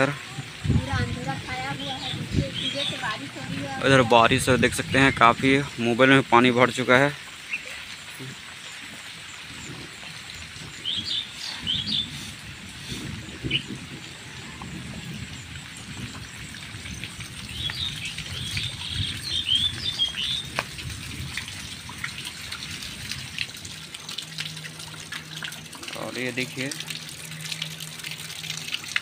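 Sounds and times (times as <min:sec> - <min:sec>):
birds chirping: 0:00.0 - 0:22.0
steady rain: 0:00.0 - 0:29.0.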